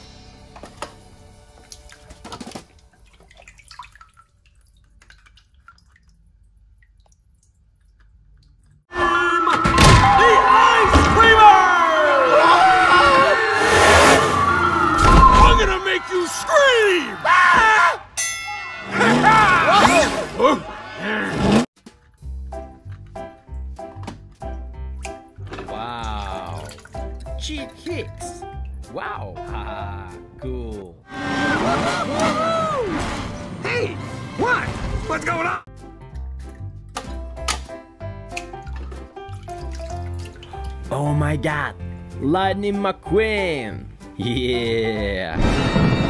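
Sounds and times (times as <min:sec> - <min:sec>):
water sloshing and splashing: 0:01.5 - 0:08.8, 0:24.9 - 0:28.8, 0:38.4 - 0:40.9
water dripping: 0:01.5 - 0:08.9, 0:22.8 - 0:28.9, 0:38.3 - 0:40.9.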